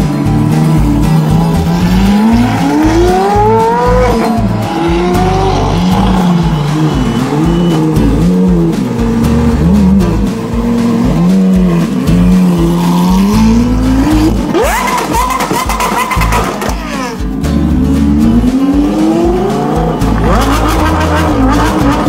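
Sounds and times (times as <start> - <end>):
car engine revving: 0.0 - 22.0
music with heavy bass: 0.0 - 22.0.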